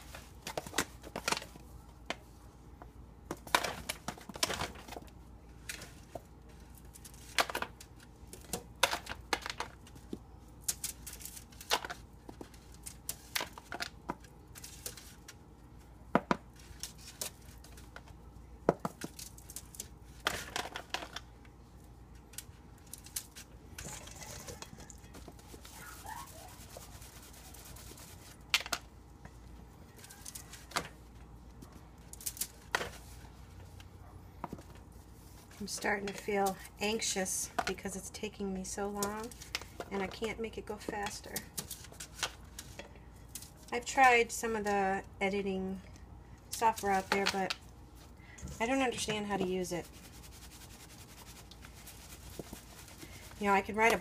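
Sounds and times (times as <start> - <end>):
aluminium foil crinkling: 6.6 - 15.4, 22.1 - 28.7, 29.9 - 30.9, 32.0 - 33.2, 38.8 - 40.4.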